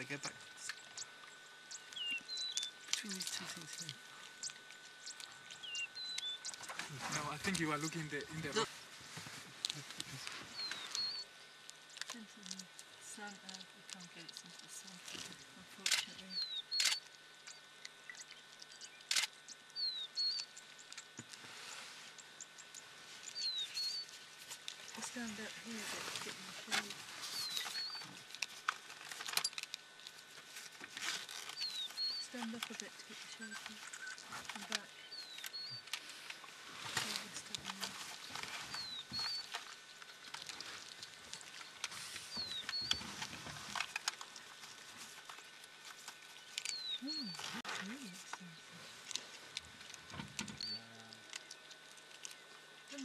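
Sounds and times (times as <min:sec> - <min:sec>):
animal chewing and crunching: 0:00.2 - 0:53.0
bird whistling: 0:46.7 - 0:47.5.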